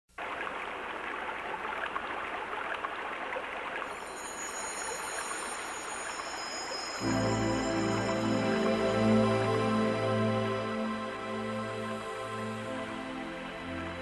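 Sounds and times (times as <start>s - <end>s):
faint high thin tones: 3.9s - 9.4s.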